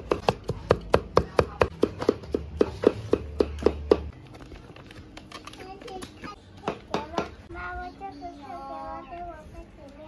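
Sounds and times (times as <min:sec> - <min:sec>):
cleaver chopping on wooden block: 0:00.0 - 0:04.1.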